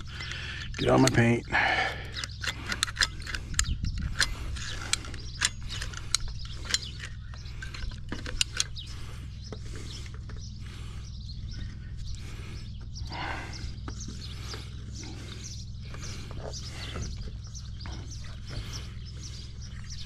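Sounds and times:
hand tools clicking and clacking: 0.0s - 9.6s
steady low hum: 0.0s - 20.0s.

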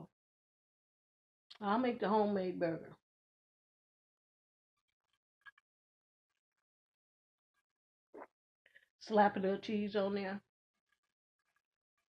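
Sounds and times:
woman talking: 1.6s - 2.9s, 9.1s - 10.4s.

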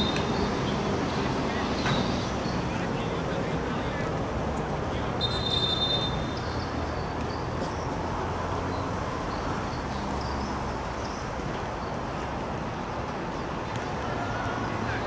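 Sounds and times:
short high whistle: 5.2s - 6.2s
crowd murmur: 13.7s - 15.0s.

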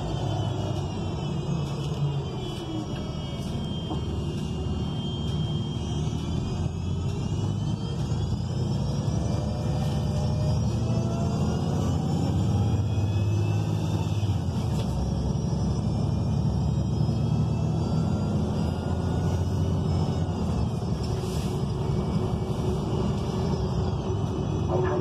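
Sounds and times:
bus engine low rumble: 0.0s - 25.0s
high whines gliding down: 0.0s - 25.0s.

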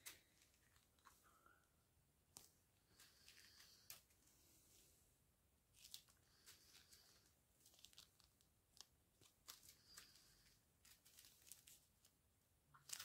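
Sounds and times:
plastic bags crinkling: 5.8s - 12.1s, 12.7s - 13.0s.

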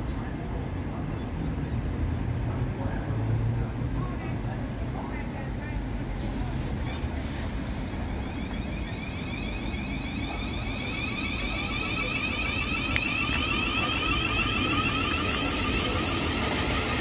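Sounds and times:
train wheels rumbling: 6.2s - 17.0s
electric train motor whine: 8.5s - 17.0s.

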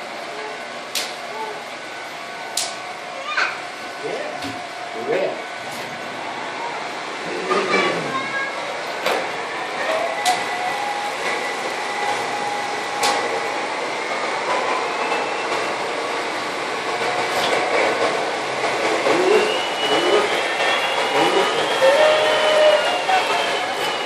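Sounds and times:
model train wheels rumbling on track: 7.0s - 24.0s.

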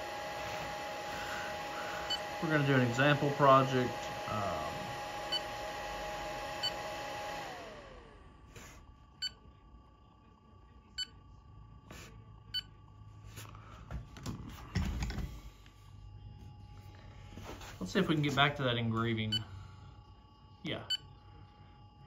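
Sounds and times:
machine whir: 0.0s - 8.4s.

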